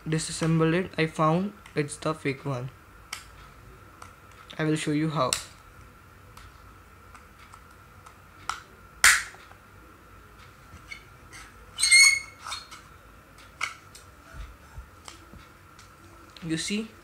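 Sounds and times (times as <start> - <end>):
sharp plastic snap: 8.5 - 9.5
plastic squeaking against metal: 10.9 - 12.8.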